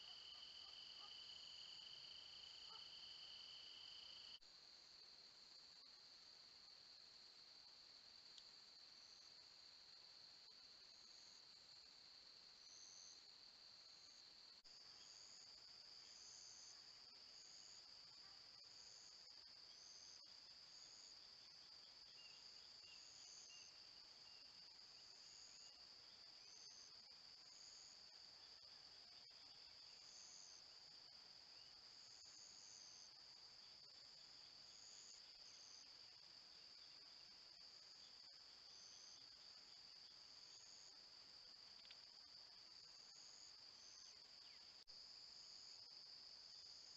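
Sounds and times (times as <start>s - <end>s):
high-pitched insect chorus: 0.0s - 46.9s.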